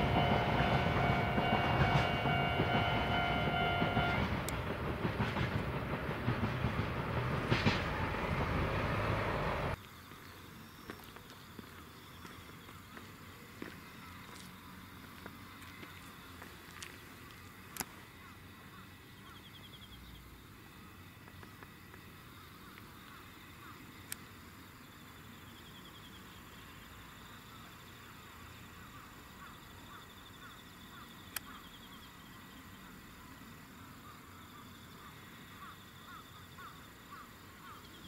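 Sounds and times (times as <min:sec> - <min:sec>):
insects chirping in grass: 0:09.7 - 0:38.0.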